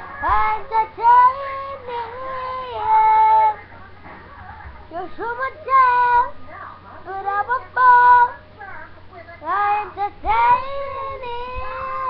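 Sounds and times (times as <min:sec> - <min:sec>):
child singing: 0:00.0 - 0:03.6, 0:04.9 - 0:06.4, 0:07.1 - 0:08.4, 0:09.4 - 0:12.0.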